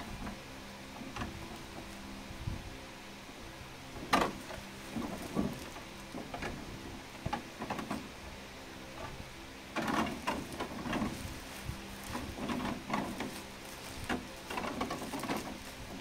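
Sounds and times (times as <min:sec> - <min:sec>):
bubble wrap and plastic crinkling: 0:10.1 - 0:16.0.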